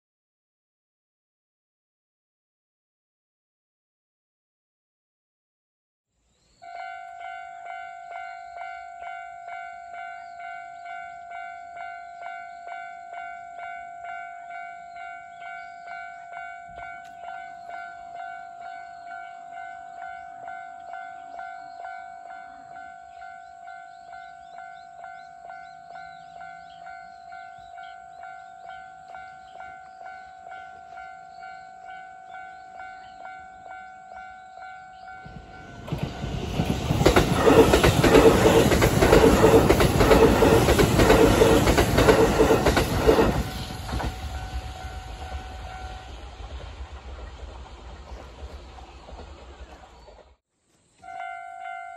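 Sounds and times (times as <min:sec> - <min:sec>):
level crossing bell ringing: 0:06.6 - 0:35.8, 0:51.0 - 0:51.9
electric train passing: 0:06.6 - 0:50.4.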